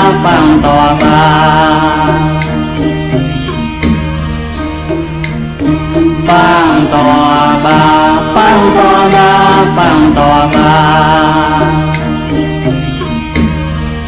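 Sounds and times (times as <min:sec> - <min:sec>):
person singing a chant-like melody: 0:00.0 - 0:03.4, 0:05.9 - 0:13.2
instrumental accompaniment: 0:00.0 - 0:14.0
steady drone: 0:00.0 - 0:14.0.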